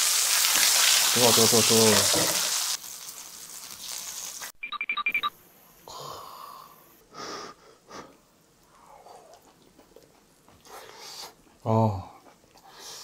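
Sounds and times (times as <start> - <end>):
meat sizzling on griddle: 0.0 - 4.5
breathy puffs and chewing: 8.0 - 13.0.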